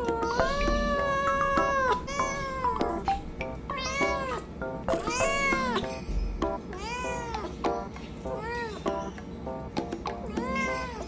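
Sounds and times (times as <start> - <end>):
cat meowing excitedly: 0.0 - 2.8, 3.7 - 4.4, 5.0 - 5.9, 6.8 - 7.4, 10.3 - 11.0.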